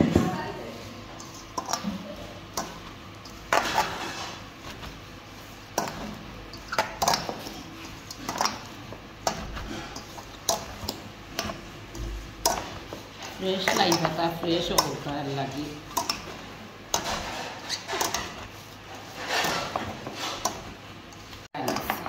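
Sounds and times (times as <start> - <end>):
food mixed by hand in bowl: 0.0 - 22.0
dishes and utensils clinking: 12.4 - 22.0.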